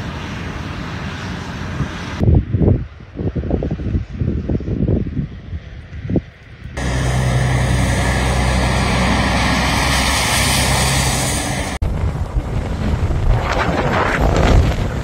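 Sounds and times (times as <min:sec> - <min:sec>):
gusty wind on microphone: 0:00.1 - 0:15.0
low engine hum: 0:06.5 - 0:12.5
tyres hissing on wet road: 0:06.8 - 0:11.8.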